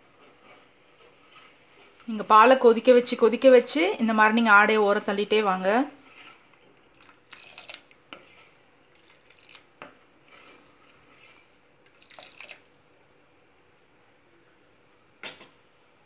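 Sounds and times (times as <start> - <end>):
plastic spoon scraping metal pot: 5.9 - 6.6, 8.1 - 8.6, 10.2 - 11.5.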